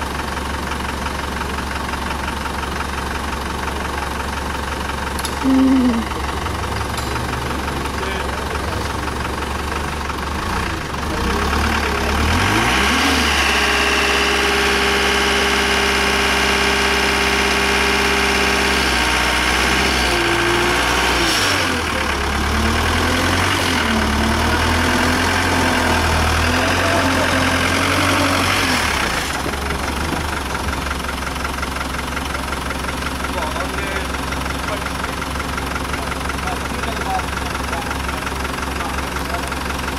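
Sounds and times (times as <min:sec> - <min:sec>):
truck engine revving: 0:05.1 - 0:39.9.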